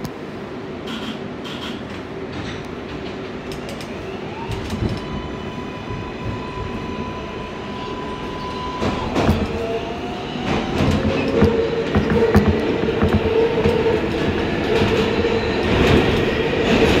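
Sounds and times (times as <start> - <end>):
subway train electric hum: 0.0 - 17.0
clattering noise: 10.5 - 15.1.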